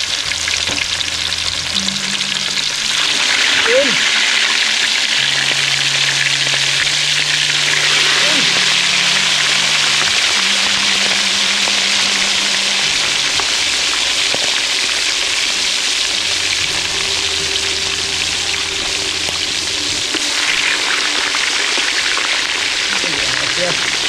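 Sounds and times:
fish sizzling in hot oil: 0.0s - 24.0s.

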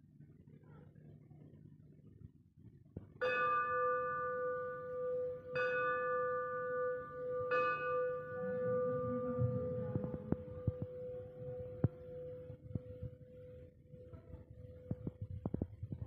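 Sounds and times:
metal bell ringing: 3.2s - 10.9s.

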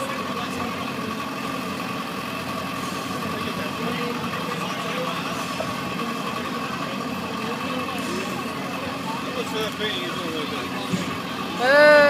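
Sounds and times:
faint indistinct voices: 0.0s - 12.0s.

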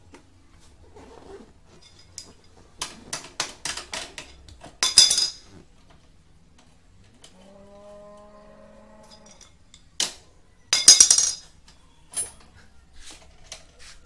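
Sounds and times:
metal clatter: 1.7s - 5.5s, 9.1s - 11.5s
hand tool clinking on metal: 1.7s - 5.6s, 9.0s - 12.5s.

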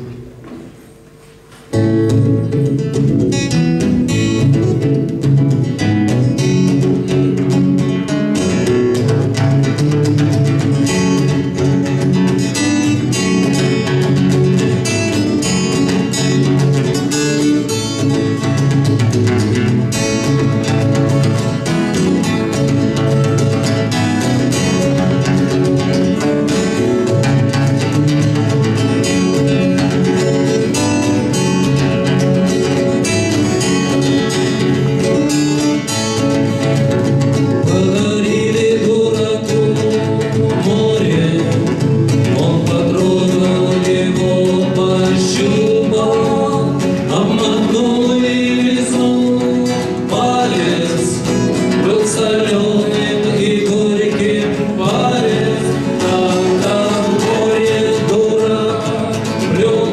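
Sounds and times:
acoustic guitars strummed: 0.0s - 59.9s
men singing together: 37.6s - 59.9s.

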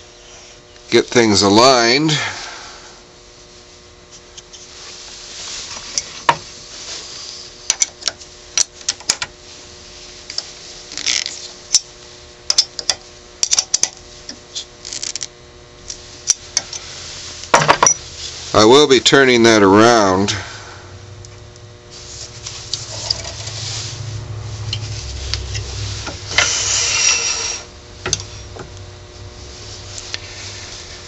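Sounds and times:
short scrapes: 21.9s - 27.7s.

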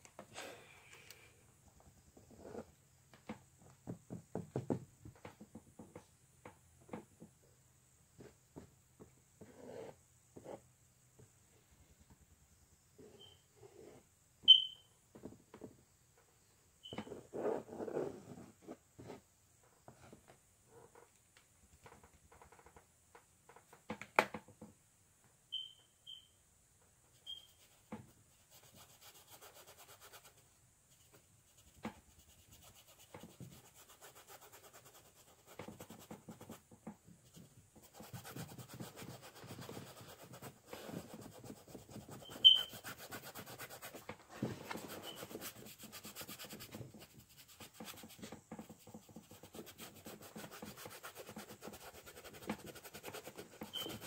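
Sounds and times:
short high chirps: 14.5s - 15.0s, 25.5s - 26.4s, 42.2s - 42.8s
paintbrush scrubbing canvas: 27.2s - 36.6s, 37.2s - 54.0s.

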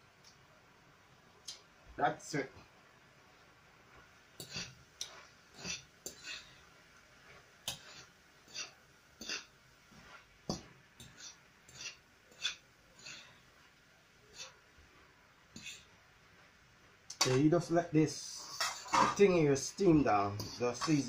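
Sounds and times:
metal utensil scraping frying pan: 4.4s - 4.8s, 5.5s - 6.6s, 7.7s - 9.6s, 10.6s - 13.4s, 18.3s - 19.7s, 20.4s - 21.0s.

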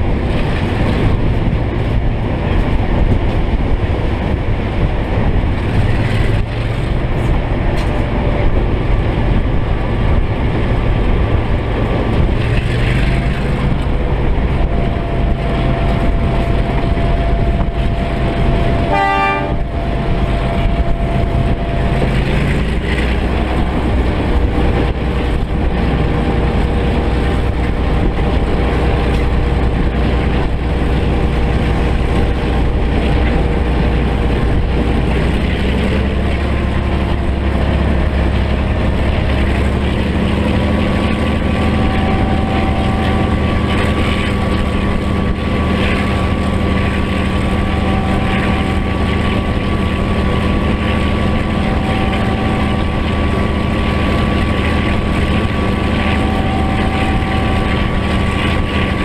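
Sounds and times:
locomotive diesel engine running: 0.0s - 59.0s
train horn toot: 14.6s - 35.1s, 40.5s - 59.0s.

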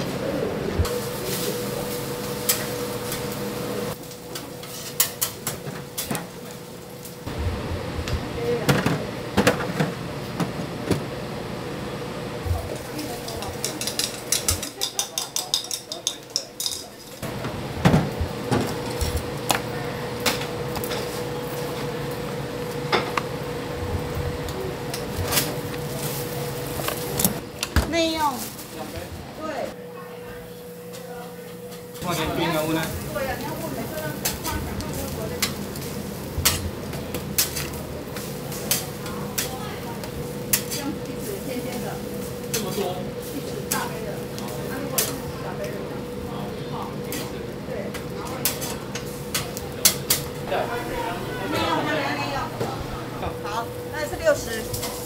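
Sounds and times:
steady background hum: 0.0s - 55.0s
steam hissing from pot: 0.9s - 4.0s
lids and utensils clattering: 12.8s - 19.2s.

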